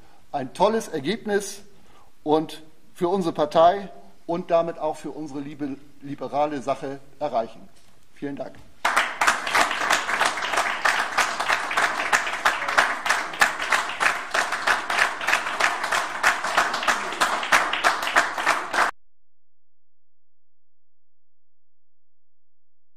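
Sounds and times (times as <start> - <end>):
audience applauding: 8.8 - 18.9.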